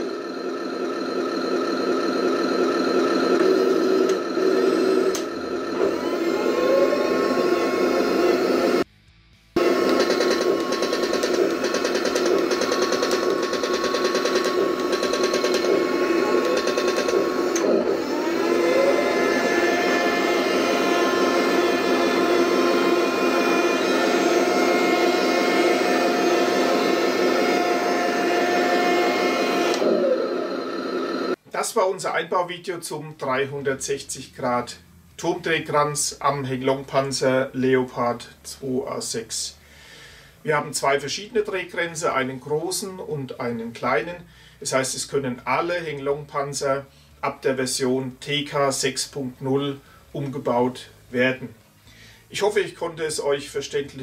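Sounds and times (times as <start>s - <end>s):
toy tank engine whirring drone: 0.0s - 8.8s, 9.6s - 31.4s
turret whine: 0.0s - 8.9s, 9.6s - 31.4s
sharp clicks: 9.8s - 17.7s.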